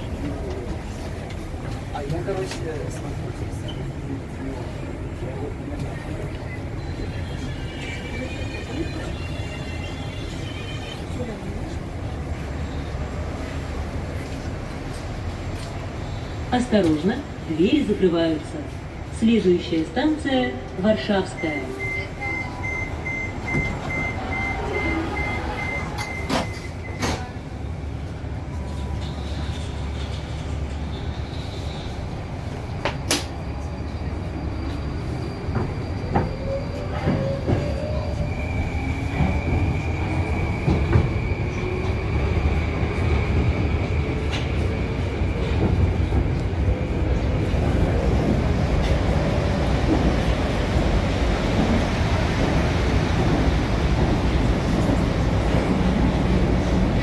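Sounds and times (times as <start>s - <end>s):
door warning beeps: 21.3s - 27.3s
train doors clicking shut: 25.7s - 27.4s, 32.8s - 33.4s.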